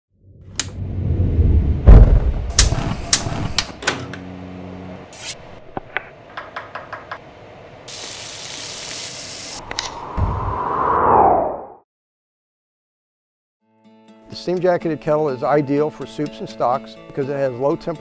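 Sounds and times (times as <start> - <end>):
gas burner flames rumbling: 0.5 - 8.8
steady high hiss: 7.7 - 9.6.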